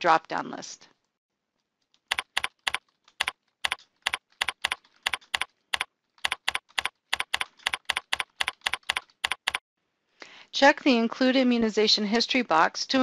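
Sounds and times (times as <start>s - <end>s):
keyboard key clicks: 2.1s - 9.6s.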